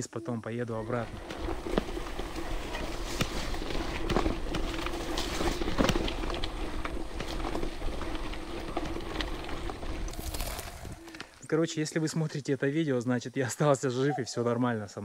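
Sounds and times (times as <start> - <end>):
bike tyres crunching on dirt: 0.7 - 12.3
bike rattling and clicking: 0.8 - 11.4.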